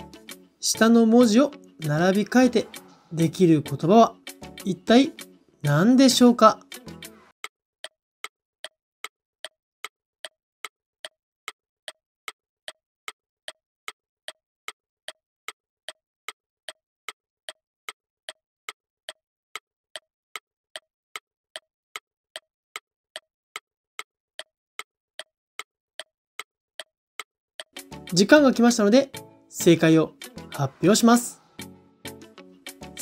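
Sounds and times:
ticking clock: 0.2 - 6.8, 7.4 - 31.3.

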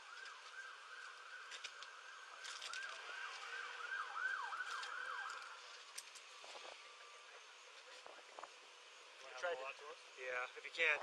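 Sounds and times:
faint siren yelping: 0.0 - 5.7.

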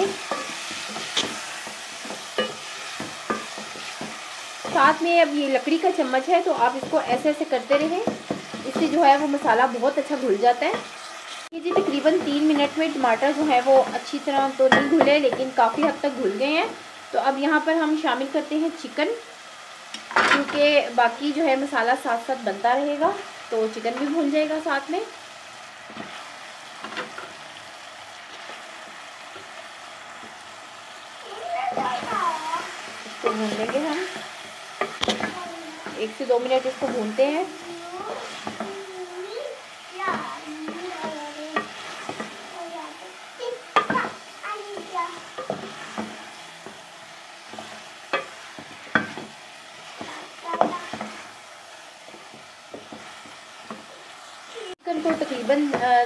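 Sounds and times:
spoon knocking and scraping pot: 0.0 - 5.2, 5.8 - 16.4, 32.7 - 37.5, 38.2 - 38.7, 40.1 - 42.4, 43.8 - 44.2, 44.8 - 46.8, 47.4 - 51.4, 52.1 - 53.9
chicken sizzling in hot oil: 0.0 - 56.0.

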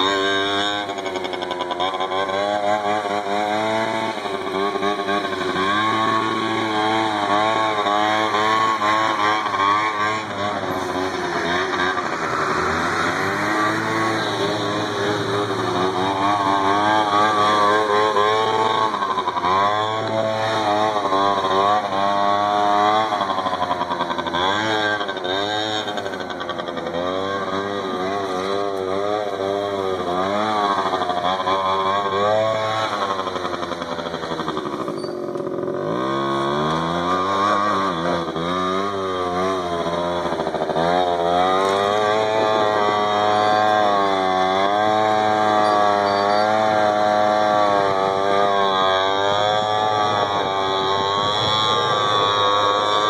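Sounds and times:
small atv engine revving: 0.0 - 53.0.

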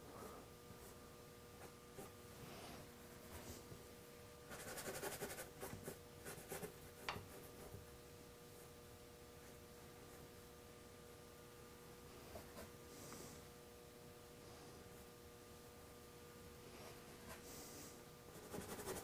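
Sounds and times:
paintbrush scratching on canvas: 4.5 - 7.7, 18.3 - 19.0.

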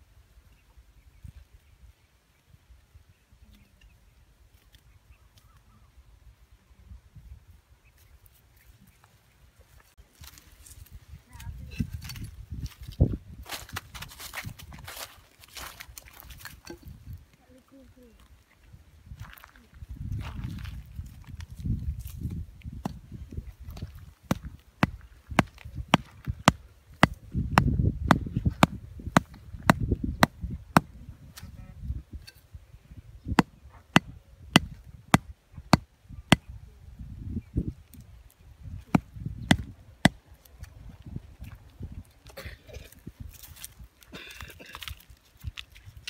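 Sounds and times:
hatchet knocking wooden stake: 24.3 - 30.9, 33.4 - 36.5, 38.9 - 40.2.

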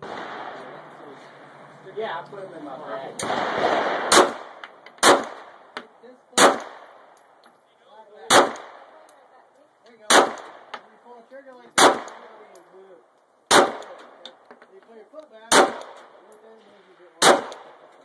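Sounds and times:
pistol shots with echo: 0.0 - 0.8, 3.2 - 7.1, 8.2 - 9.0, 10.0 - 10.8, 11.7 - 12.5, 13.5 - 14.2, 15.5 - 16.2, 17.2 - 17.9.

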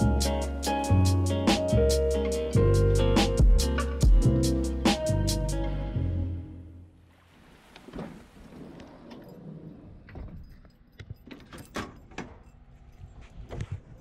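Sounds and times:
keys jangling: 10.2 - 13.3.

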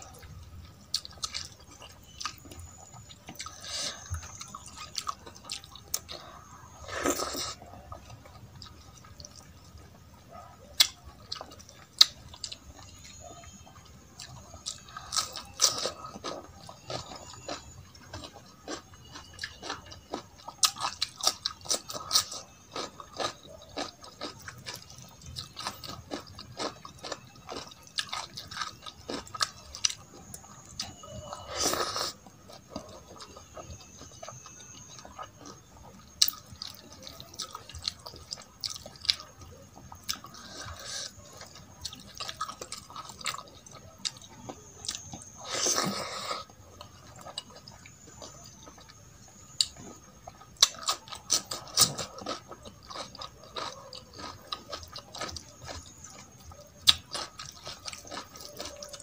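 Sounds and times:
chewing with mouth clicks: 0.0 - 59.0.

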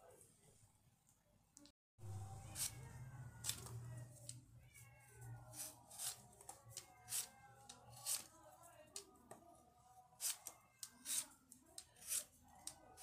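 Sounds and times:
peeler scraping potato skin: 2.5 - 2.8, 5.5 - 8.3, 10.2 - 11.3, 12.0 - 13.0.

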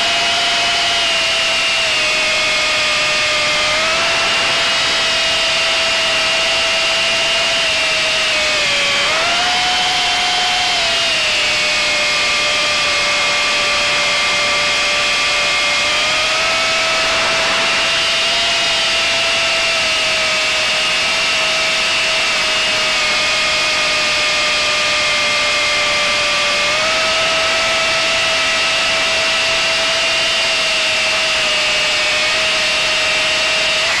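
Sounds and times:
drone propellers whining: 1.0 - 21.8.

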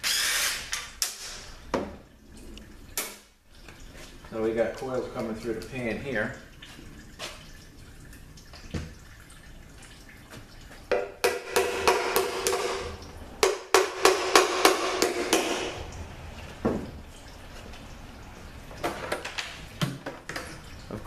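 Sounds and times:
hammer rapping on metal pan: 10.9 - 15.7.

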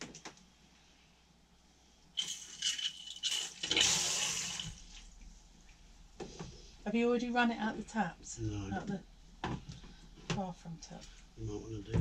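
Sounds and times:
water rushing from a tap: 2.2 - 5.0.

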